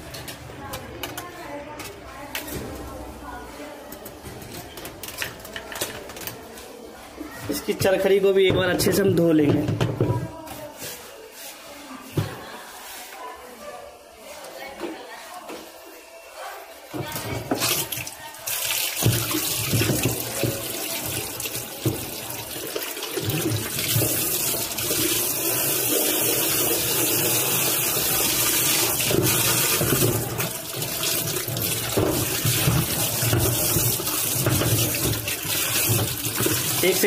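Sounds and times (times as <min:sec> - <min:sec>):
water splashing on plastic: 0:17.1 - 0:25.6, 0:26.2 - 0:37.0.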